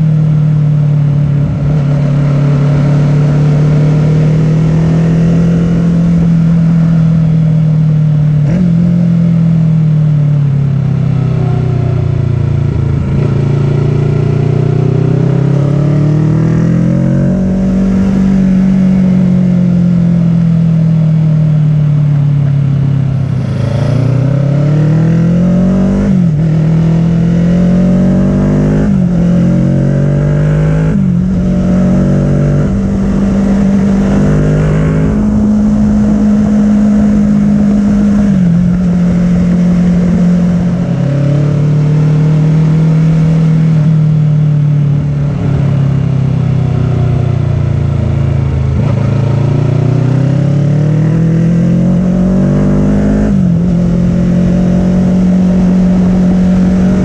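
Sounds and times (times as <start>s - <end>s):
motorcycle engine revving: 0.0s - 57.0s
wind on microphone: 22.7s - 26.9s.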